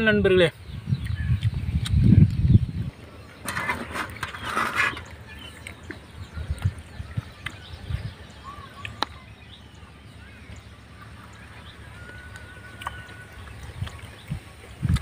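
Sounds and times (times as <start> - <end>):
bird chirps: 0.5 - 15.0
thin held bird whistle: 8.4 - 9.6.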